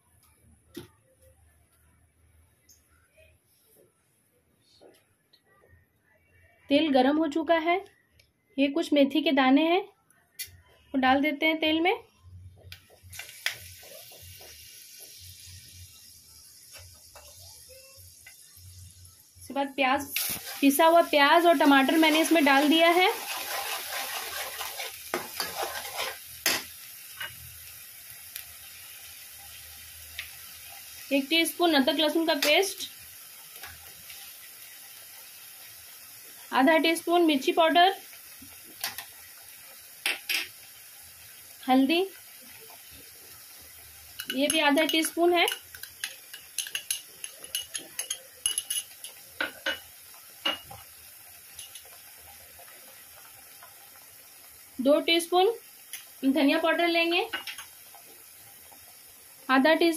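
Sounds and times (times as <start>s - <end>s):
paste sizzling in oil: 13.0s - 59.9s
metal spoon scraping pan: 21.6s - 26.6s
utensils clinking on steel pan: 44.2s - 50.7s, 51.6s - 51.9s.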